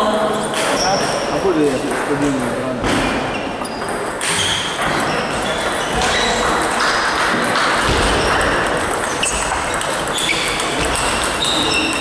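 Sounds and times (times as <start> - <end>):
ping pong from other tables: 0.0 - 12.0
table tennis ball clicking: 6.4 - 12.0.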